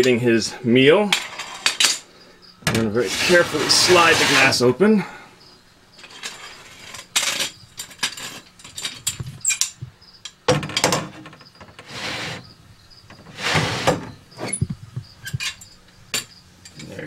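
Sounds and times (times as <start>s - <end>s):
glass door scraping in track: 1.1s - 2.0s, 2.7s - 4.8s, 6.0s - 8.5s, 10.6s - 14.7s.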